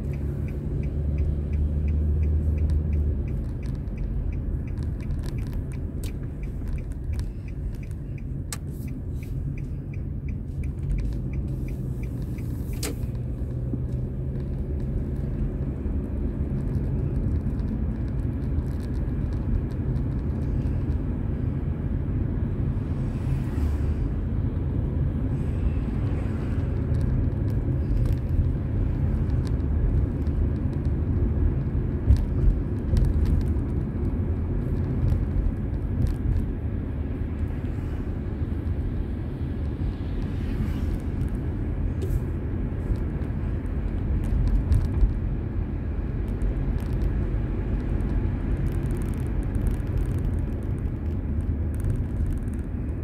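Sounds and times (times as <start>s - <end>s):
car road noise rumble: 0.0s - 53.0s
small clicks: 16.4s - 21.0s.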